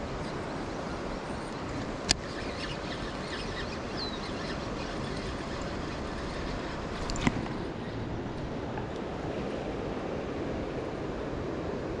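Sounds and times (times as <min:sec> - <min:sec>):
river water rushing: 0:00.0 - 0:12.0
faint bird chirps: 0:02.2 - 0:06.8.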